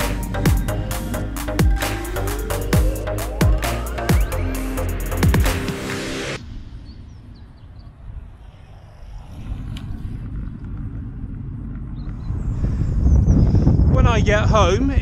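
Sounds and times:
wind rumble on microphone: 6.4 - 15.0.

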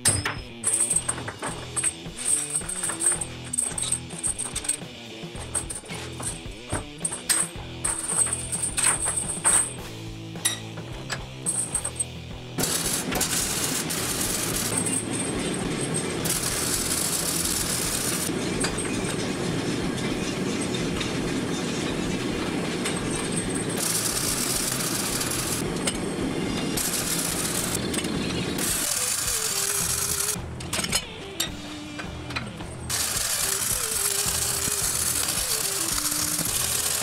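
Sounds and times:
welding arc crackling sizzle: 0.6 - 7.8, 12.5 - 30.5, 32.9 - 37.0.

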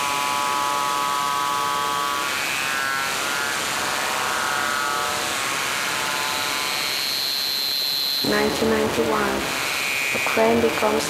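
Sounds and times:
dense electronic buzzing: 0.0 - 11.0
high steady tone: 8.2 - 9.6.

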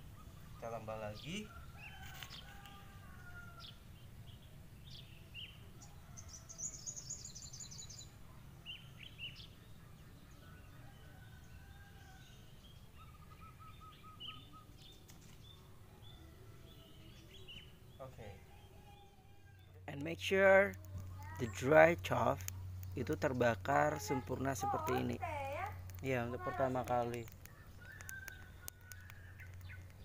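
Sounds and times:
birds chirping: 0.0 - 30.0
faint low rumble: 7.2 - 30.0
bird trill: 12.1 - 15.0.

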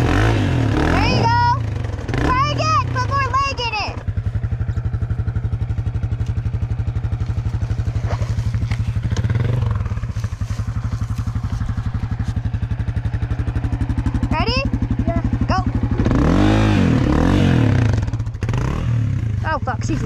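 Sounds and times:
dirt bike engine idling: 0.0 - 20.0.

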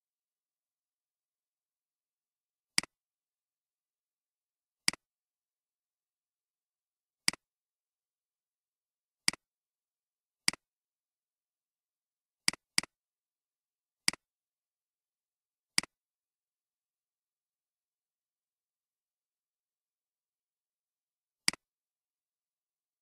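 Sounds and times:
computer mouse clicks: 21.4 - 21.7.

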